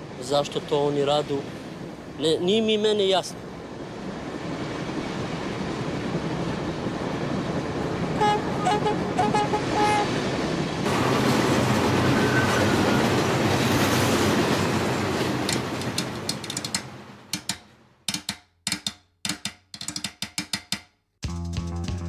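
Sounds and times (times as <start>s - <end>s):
electric train passing: 0.0s - 17.8s.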